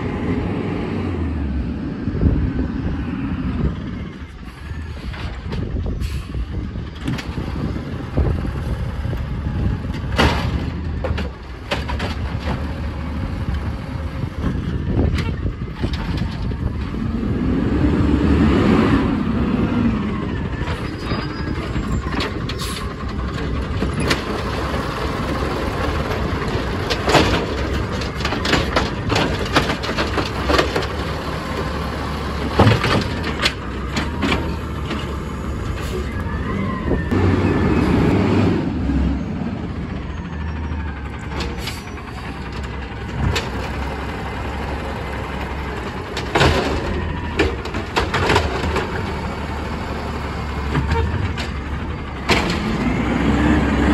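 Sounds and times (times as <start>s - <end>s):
garbage truck engine running: 0.0s - 53.9s
air brakes hissing: 6.0s - 6.6s.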